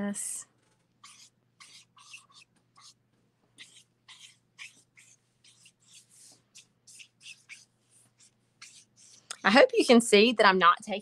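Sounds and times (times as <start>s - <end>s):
brush pen scratching on paper: 1.0s - 3.0s, 3.6s - 10.0s.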